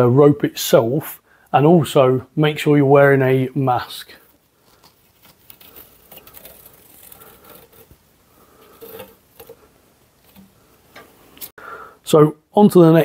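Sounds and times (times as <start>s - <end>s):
gasket tearing and crackling: 4.6s - 8.0s, 8.6s - 10.5s.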